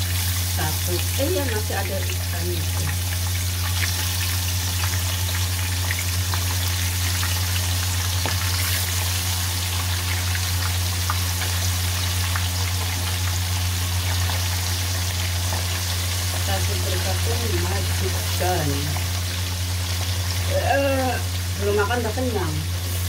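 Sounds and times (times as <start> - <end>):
fish sizzling in hot oil: 0.0 - 23.0.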